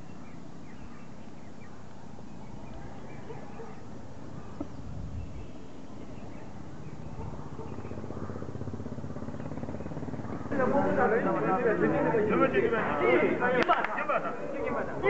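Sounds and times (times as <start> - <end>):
faint bird chirps: 0.0 - 8.2
murmur of distant voices: 0.0 - 15.0.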